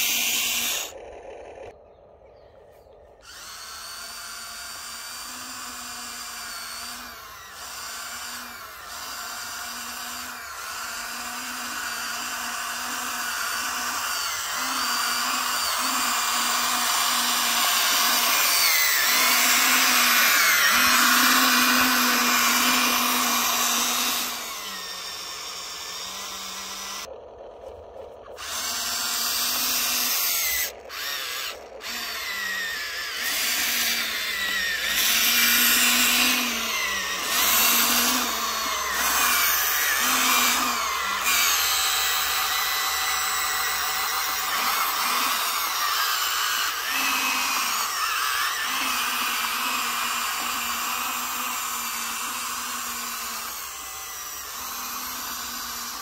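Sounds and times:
electric motors whining: 0:00.0 - 0:56.0.

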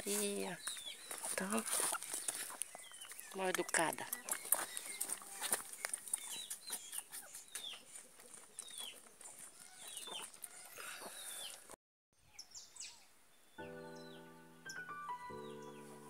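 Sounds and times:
chickens clucking and calling: 0:02.0 - 0:11.7.

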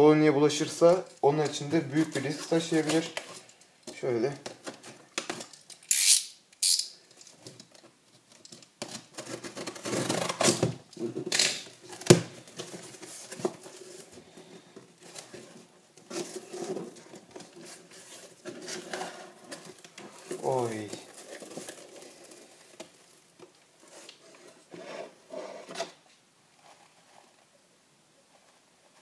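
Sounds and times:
scissors slitting packing tape: 0:05.7 - 0:06.9
cardboard scraping and rustling: 0:08.9 - 0:27.4.

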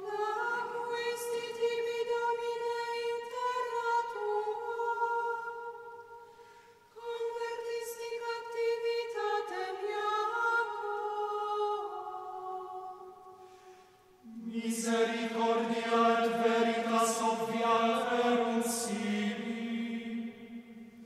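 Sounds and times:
mixed choir singing a chant: 0:14.2 - 0:21.0.

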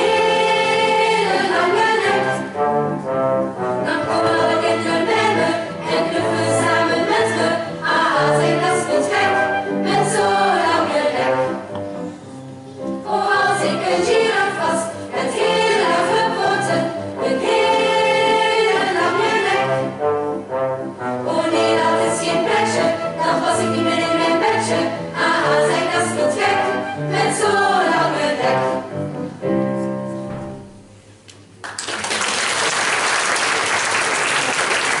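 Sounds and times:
children's choir singing: 0:00.0 - 0:02.6, 0:03.8 - 0:11.8, 0:12.8 - 0:20.0, 0:21.2 - 0:29.0
brass accompaniment: 0:00.0 - 0:11.8, 0:15.4 - 0:29.0
audience applauding: 0:31.6 - 0:35.0.

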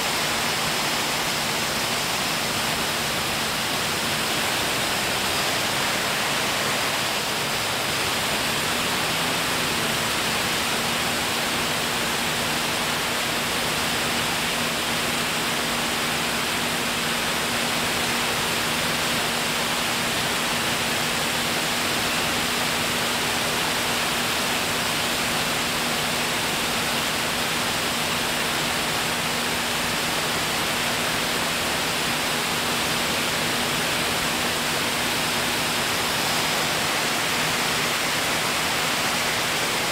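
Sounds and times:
aircraft engine noise: 0:00.0 - 0:39.9
aircraft cabin air rush: 0:28.2 - 0:39.9.

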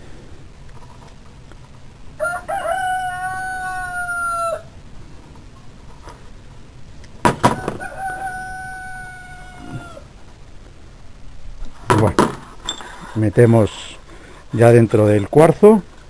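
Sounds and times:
rooster crowing: 0:02.2 - 0:04.8, 0:07.4 - 0:10.1.

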